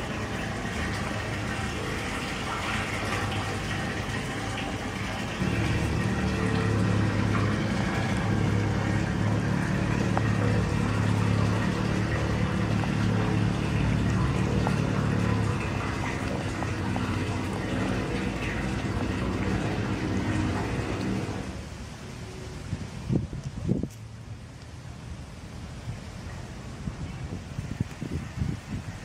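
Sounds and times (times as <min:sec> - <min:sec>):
steady low hum: 0:00.0 - 0:22.1.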